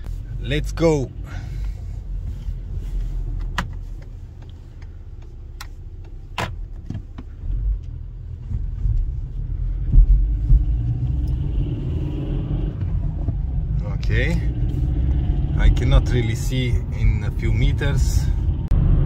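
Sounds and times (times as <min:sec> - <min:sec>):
car engine and road rumble: 0:00.0 - 0:19.0.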